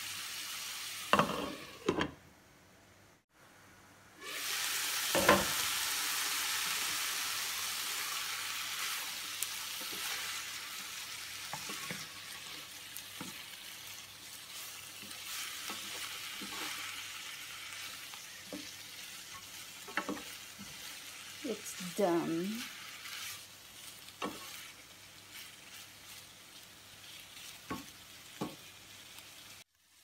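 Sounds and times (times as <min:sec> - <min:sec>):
food sizzling in a frying pan: 0:00.0 - 0:02.0, 0:04.2 - 0:30.0
wooden spatula scraping a pan: 0:01.1 - 0:02.0, 0:08.8 - 0:29.3.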